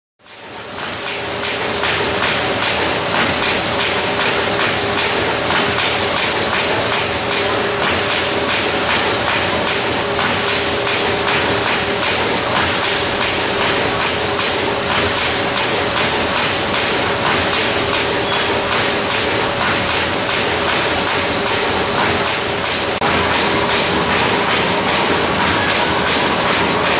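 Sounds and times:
steady hum: 0:23.0 - 0:26.9.

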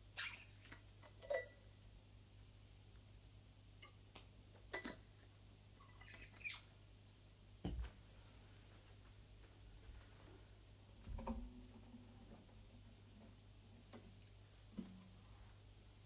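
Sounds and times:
short squeak: 0:05.9 - 0:06.7.

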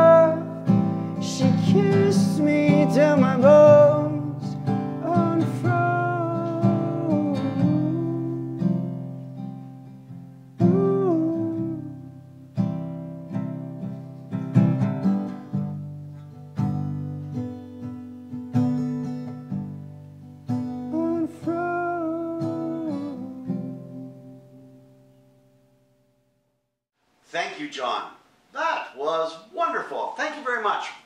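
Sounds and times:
man singing: 0:00.0 - 0:08.8, 0:10.6 - 0:12.2, 0:20.8 - 0:24.6
acoustic guitar: 0:00.0 - 0:26.4.

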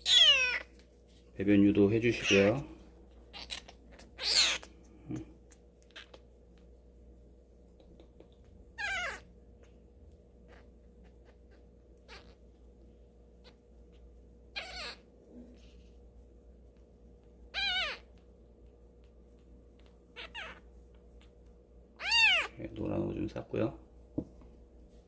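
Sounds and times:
newborn kitten mewing: 0:00.0 - 0:00.7, 0:03.3 - 0:05.2, 0:05.8 - 0:06.2, 0:08.7 - 0:09.4, 0:10.4 - 0:12.4, 0:13.4 - 0:15.8, 0:17.5 - 0:18.2, 0:19.8 - 0:21.3, 0:22.0 - 0:22.6.

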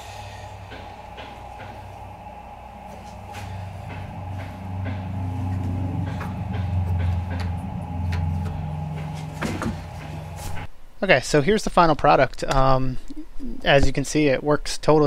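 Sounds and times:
low droning hum: 0:00.0 - 0:10.9
faint high whine: 0:00.0 - 0:11.2.

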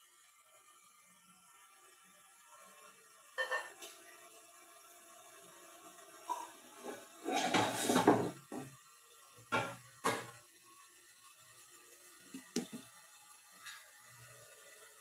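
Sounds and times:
kitchen clattering and rustling: 0:06.4 - 0:08.8.

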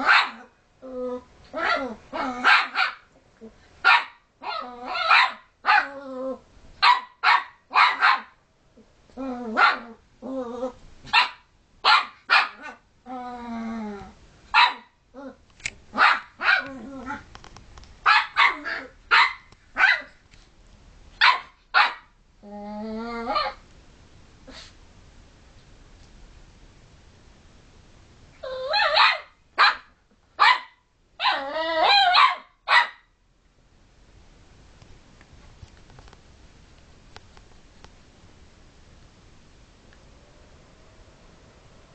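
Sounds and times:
puppy yapping: 0:00.0 - 0:00.5, 0:01.5 - 0:03.1, 0:03.8 - 0:05.9, 0:06.8 - 0:08.4, 0:11.1 - 0:12.8, 0:14.6 - 0:15.0, 0:16.0 - 0:17.2, 0:18.1 - 0:20.2, 0:21.2 - 0:22.1, 0:28.4 - 0:33.1
puppy growling: 0:00.0 - 0:02.6, 0:04.4 - 0:05.1, 0:05.7 - 0:06.4, 0:08.8 - 0:10.8, 0:12.6 - 0:14.2, 0:16.0 - 0:17.3, 0:18.4 - 0:19.0, 0:22.4 - 0:23.6.

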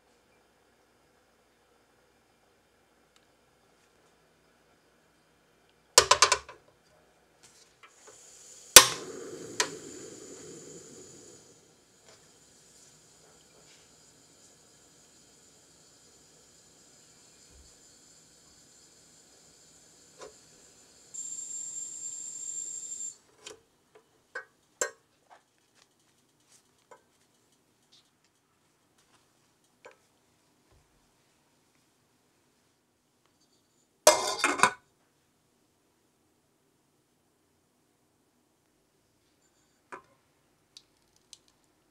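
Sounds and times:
gas flame hissing: 0:07.9 - 0:23.2
stove knob click: 0:08.8 - 0:09.8
gas stove igniter clicks: 0:08.8 - 0:11.2
small clicks and taps: 0:40.8 - 0:41.8.

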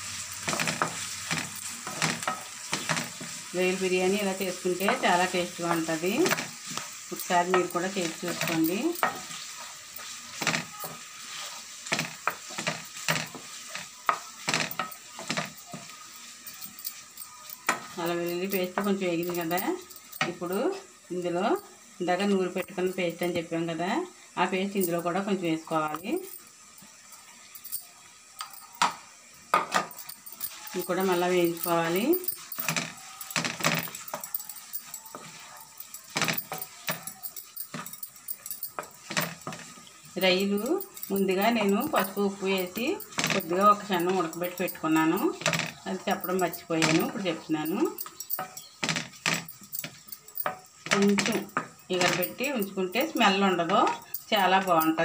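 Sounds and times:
prawns sizzling in a frying pan: 0:00.0 - 0:55.0
wooden spatula scraping a pan: 0:00.4 - 0:17.1, 0:30.4 - 0:37.9, 0:38.7 - 0:40.0.

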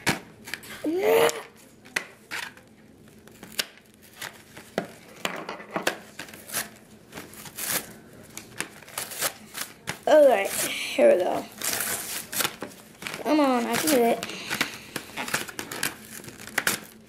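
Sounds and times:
plastic packaging crinkling: 0:06.0 - 0:17.0.

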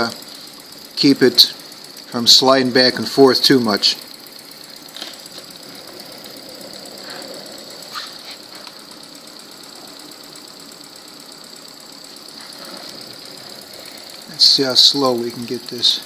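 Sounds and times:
air hissing: 0:00.0 - 0:16.0
engine mechanical clatter: 0:00.0 - 0:16.0.

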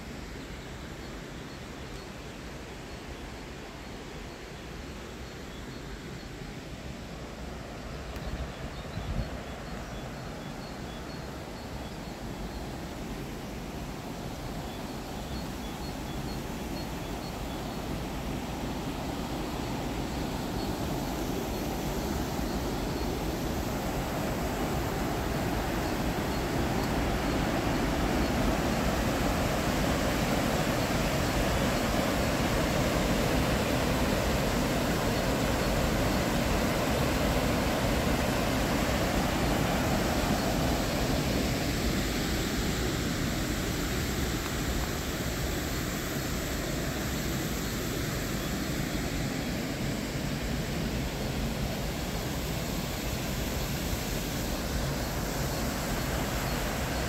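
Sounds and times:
water rushing over weir: 0:17.8 - 0:57.0.

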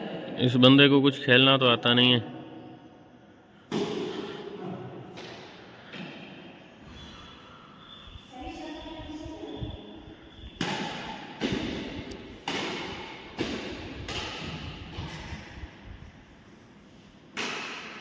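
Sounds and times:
badminton rackets hitting shuttlecock: 0:03.7 - 0:06.4, 0:10.5 - 0:15.6, 0:17.3 - 0:18.0.

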